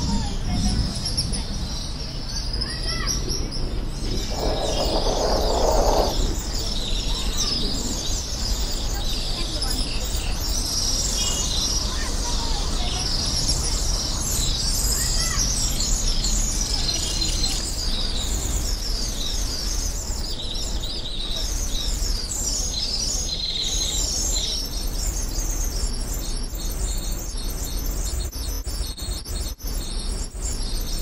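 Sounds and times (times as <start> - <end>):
steady low rumble: 0.0 - 9.0
small birds chirping: 0.0 - 31.0.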